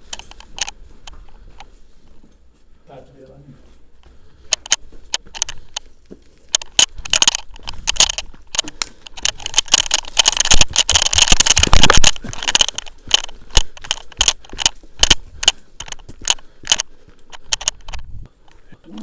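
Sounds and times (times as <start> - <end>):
gear rattling: 4.5 - 19.0
footsteps crunching on forest debris: 4.9 - 17.8.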